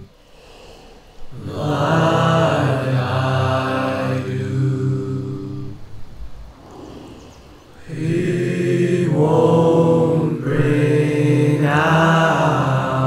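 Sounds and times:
a cappella male vocal harmony: 1.3 - 5.9, 7.8 - 13.0.

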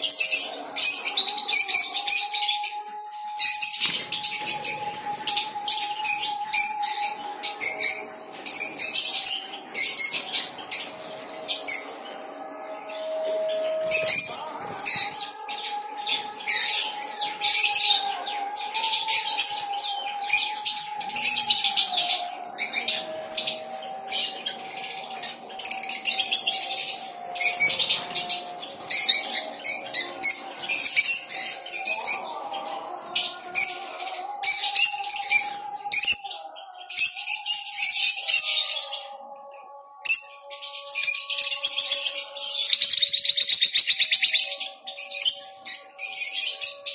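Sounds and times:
parrots chirping and squeaking: 3.4 - 12.0, 13.0 - 17.0.

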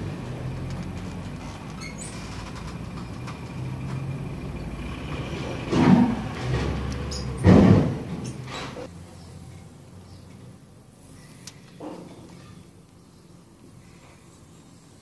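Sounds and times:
vehicle engine humming: 0.0 - 11.6
loud thumps: 5.7 - 8.3.

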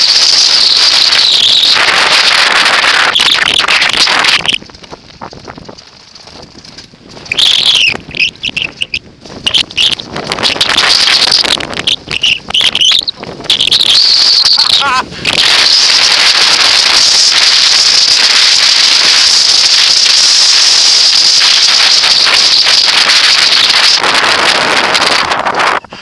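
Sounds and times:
bike tyre noise on grass: 0.0 - 26.0
wind rush: 0.0 - 26.0
broken high-pitched sounds: 7.3 - 24.0.

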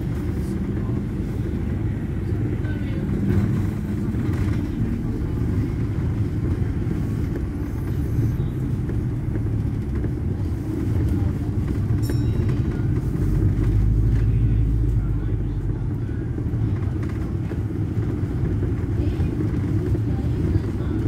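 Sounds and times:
bus engine and road rumble: 0.0 - 21.0.

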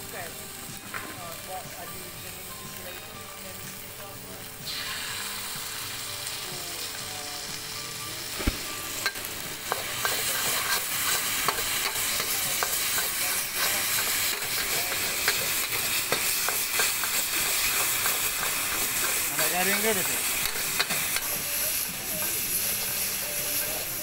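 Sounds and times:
noodles sizzling in a wok: 0.0 - 24.0
metal spatula scraping a wok: 8.8 - 24.0.

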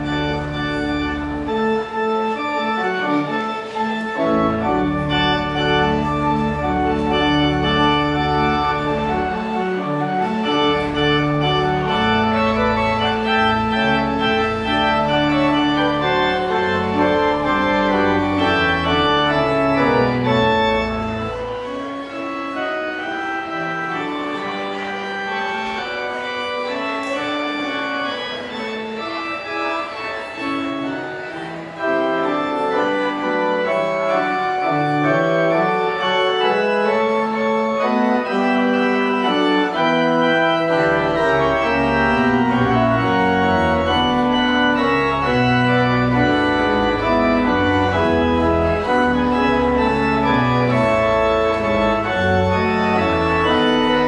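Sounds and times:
church organ chords: 0.0 - 54.0
deep organ pedal bass notes: 0.0 - 54.0.

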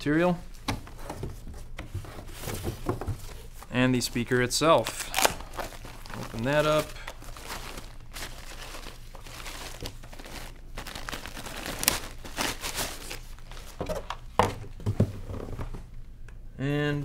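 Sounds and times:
plastic wrap crinkling: 3.2 - 14.2.

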